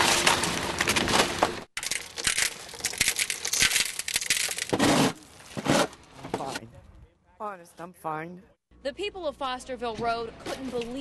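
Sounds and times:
debris crunching underfoot: 0.0 - 6.6.

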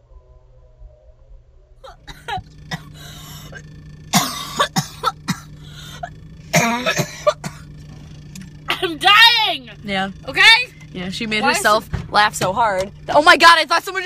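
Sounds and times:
steady low hum: 0.0 - 14.0
woman coughing: 1.8 - 3.6, 4.2 - 7.7.

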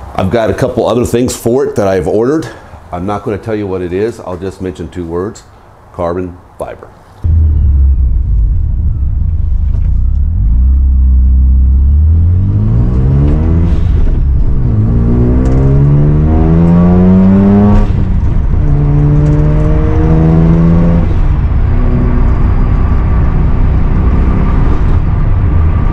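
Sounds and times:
rotary engine revving: 7.2 - 25.1.

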